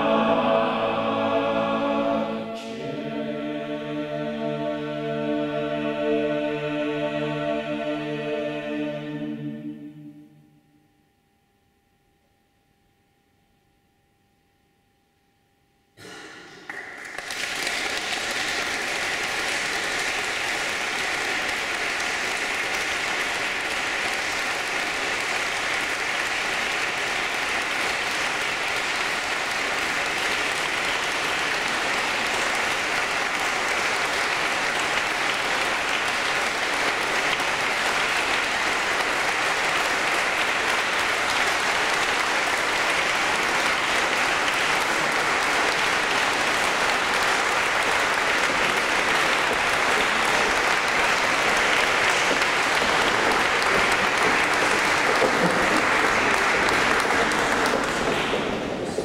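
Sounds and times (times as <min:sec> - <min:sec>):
faint sung chord: 0:00.0 - 0:15.7
audience applauding: 0:16.0 - 0:59.0.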